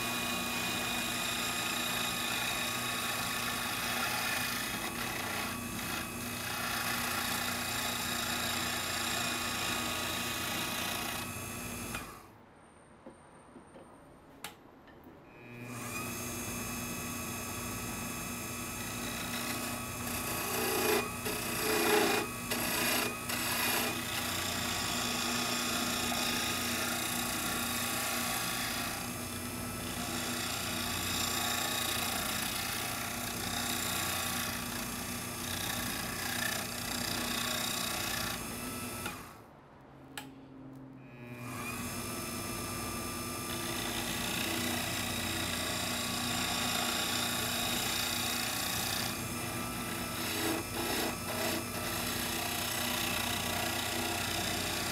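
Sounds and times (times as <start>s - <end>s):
turning tool scraping wood: 0.0s - 12.1s, 18.8s - 29.2s, 43.5s - 54.9s
lathe motor whine: 0.0s - 12.2s, 15.4s - 39.4s, 41.0s - 54.9s.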